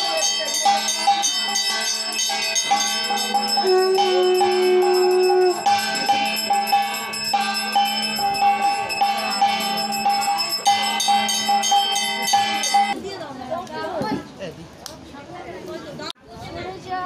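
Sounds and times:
brass hand bell ringing: 0:00.0 - 0:13.0
long held tone: 0:03.2 - 0:10.6.

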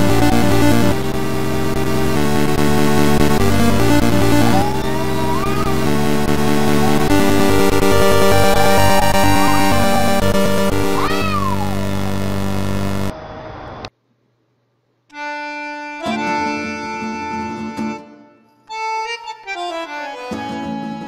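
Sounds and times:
loud music track: 0:00.0 - 0:13.1
tune with long held notes: 0:00.0 - 0:13.1.

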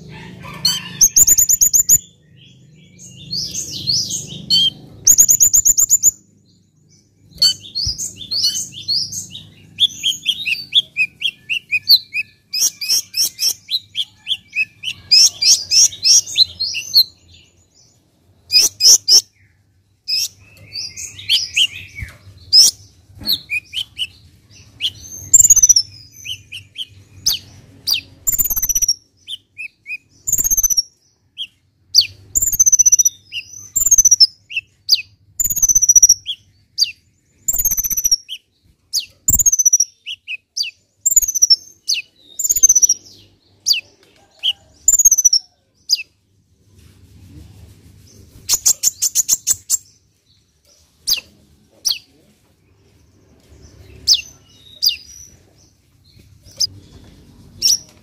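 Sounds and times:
bird singing high twittering trills: 0:00.8 - 0:18.0, 0:23.4 - 0:43.8.

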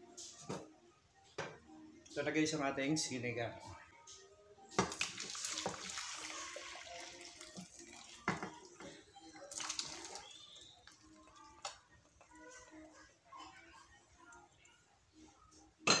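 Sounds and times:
soup pouring into a glass dish: 0:04.8 - 0:08.8.

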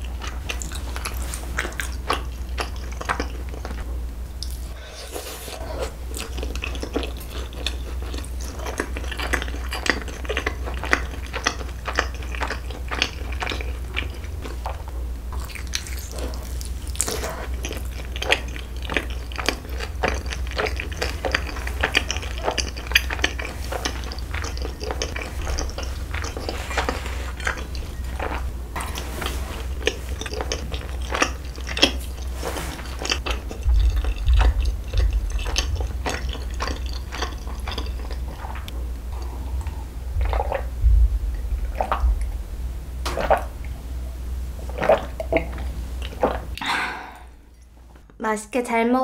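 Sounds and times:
chewing and wet mouth clicks: 0:06.1 - 0:14.8, 0:15.4 - 0:29.0, 0:29.8 - 0:32.3, 0:32.9 - 0:40.7
sipping and swallowing water: 0:15.4 - 0:42.4, 0:43.1 - 0:43.8, 0:44.6 - 0:47.7.

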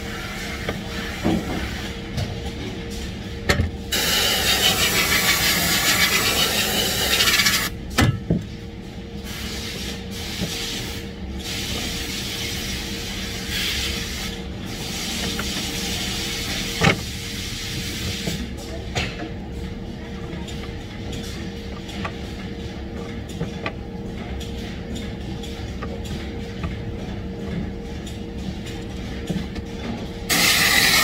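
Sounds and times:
compressed air gun hissing: 0:03.9 - 0:07.7, 0:30.3 - 0:31.0.

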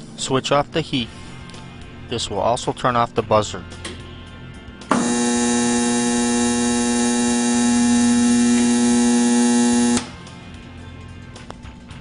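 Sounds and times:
loud steady buzzer: 0:04.9 - 0:10.1.

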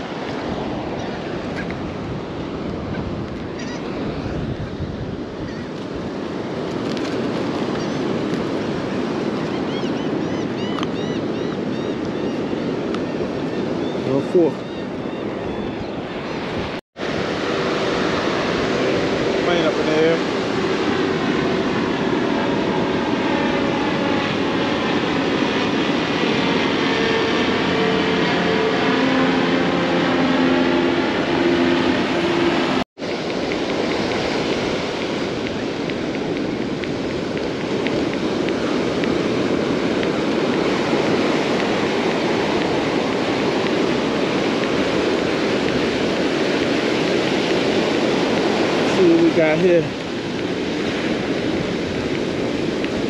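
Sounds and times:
wind noise: 0:00.0 - 0:53.0
aircraft engine drone: 0:11.0 - 0:53.0
surf breaking: 0:17.0 - 0:53.0.

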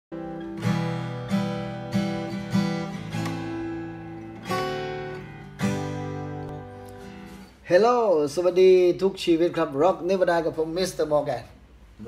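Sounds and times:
acoustic guitar strumming chords: 0:00.1 - 0:07.6.

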